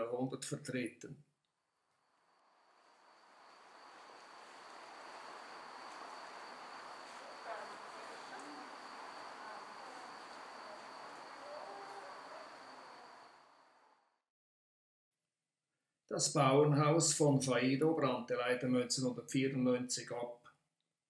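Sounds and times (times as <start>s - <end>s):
soft hiss: 1.8s - 13.9s
high-pitched insect trill: 2.1s - 13.6s.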